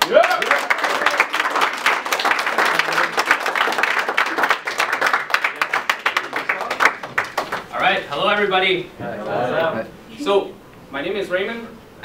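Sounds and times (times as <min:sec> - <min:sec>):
audience clapping: 0:00.0 - 0:07.9.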